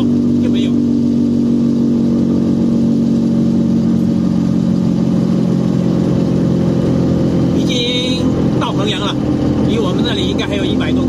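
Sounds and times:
car engine cruising: 0.0 - 11.0.

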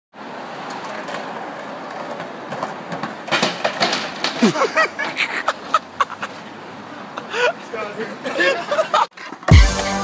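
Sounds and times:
skateboard wheels rolling on concrete: 0.1 - 10.0
skateboard clacks: 0.5 - 6.4.

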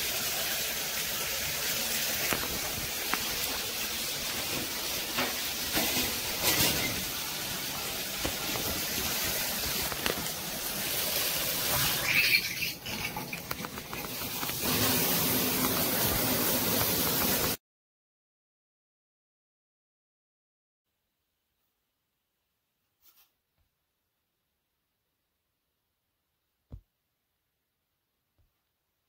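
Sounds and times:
shower water running: 0.0 - 17.6.

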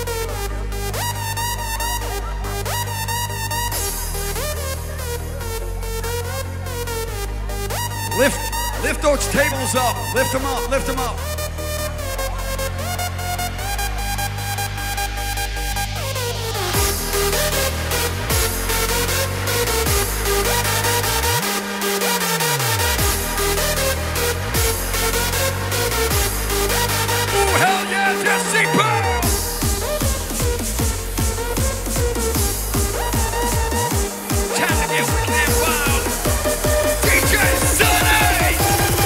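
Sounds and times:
hardstyle dance music: 0.0 - 39.0
held bass: 22.9 - 27.9, 35.1 - 39.0.

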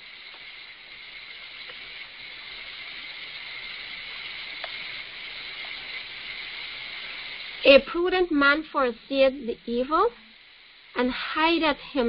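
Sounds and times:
faint clicks: 0.0 - 7.7
open microphone hiss: 0.0 - 12.0.

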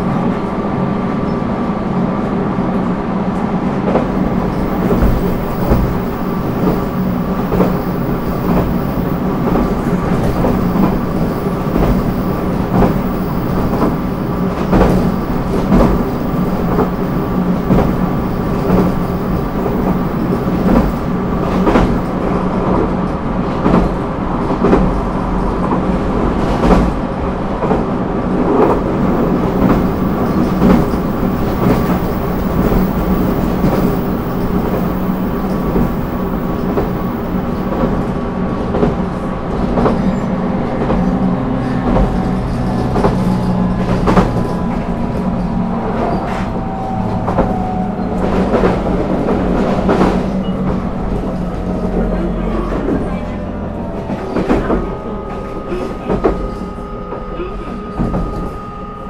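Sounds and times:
train running drone: 0.0 - 59.0
wheels clacking over rail joints: 3.9 - 22.4, 27.6 - 38.0.

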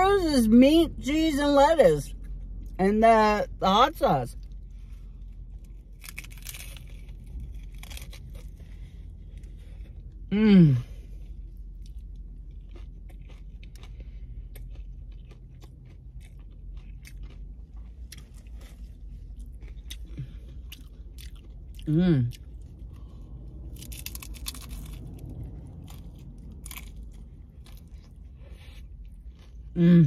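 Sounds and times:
crunching bites into taco shell: 5.2 - 10.2, 11.6 - 29.8
chewing with small crackles: 10.9 - 29.8.

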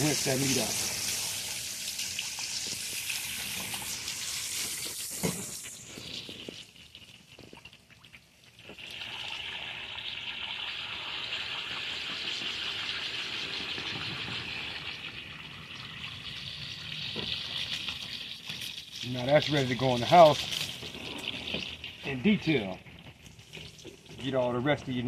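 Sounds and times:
hose water hissing: 0.0 - 6.8, 16.4 - 25.0.

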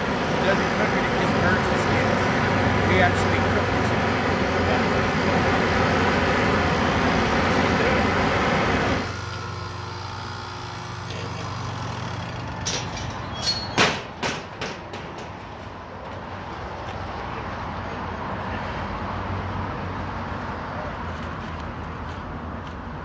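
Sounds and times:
low hum of rotating drum: 0.0 - 13.4
gas burner rushing: 0.0 - 15.4
sharp metal clanks: 12.6 - 15.5.

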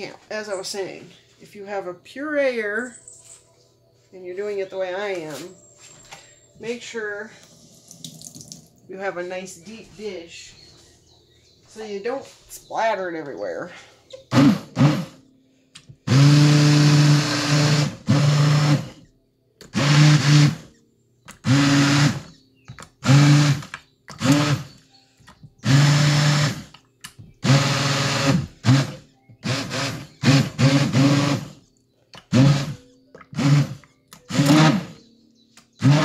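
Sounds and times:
immersion blender motor whirring: 14.3 - 15.2, 16.0 - 19.0, 19.7 - 20.7, 21.4 - 22.4, 23.0 - 24.8, 25.6 - 26.7, 27.4 - 31.6, 32.3 - 35.0, 35.8 - 36.0.

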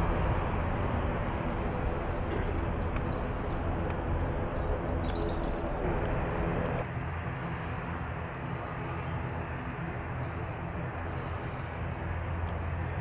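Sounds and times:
airliner engines running: 0.0 - 13.0
bird chirping: 3.8 - 5.8.

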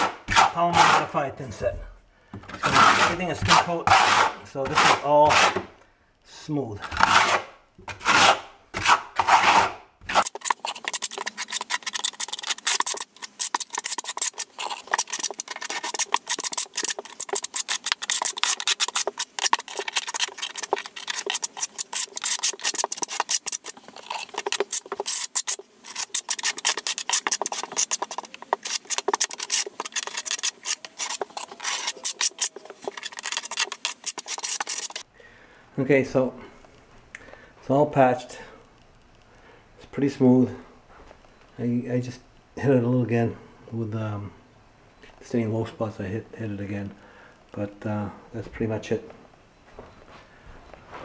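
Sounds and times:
trowel scraping across a wall: 0.0 - 1.7, 2.5 - 5.7, 6.8 - 35.1.

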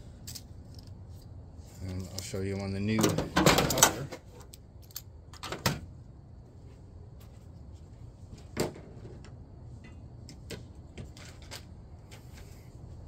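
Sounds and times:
tools and parts clicking and knocking: 0.2 - 1.3, 2.9 - 5.8, 8.6 - 12.5.

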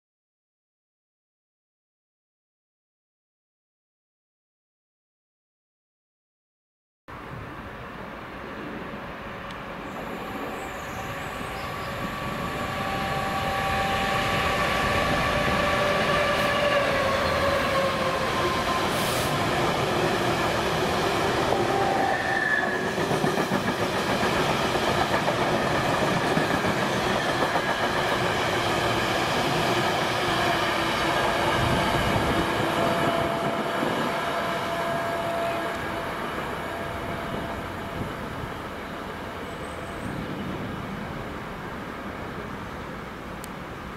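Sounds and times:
diesel locomotive engine: 7.3 - 43.9
train wheels running over rails: 11.8 - 38.1.

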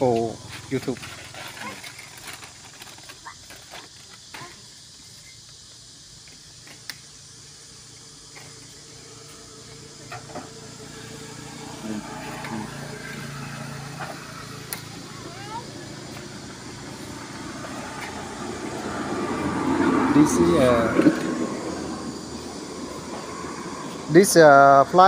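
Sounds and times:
vehicle engine humming: 5.5 - 25.0.

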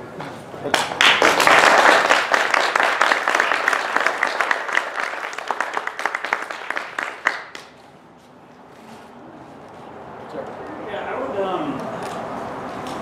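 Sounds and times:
audience applause: 0.7 - 7.7.

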